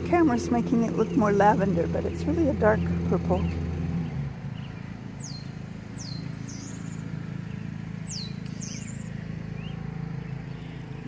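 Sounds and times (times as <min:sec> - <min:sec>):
bird whistles sweeping downward: 0:08.0 - 0:09.8.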